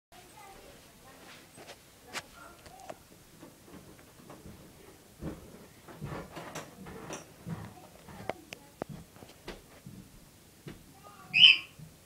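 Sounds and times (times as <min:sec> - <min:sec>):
cockatiel call: 0:11.3 - 0:11.8.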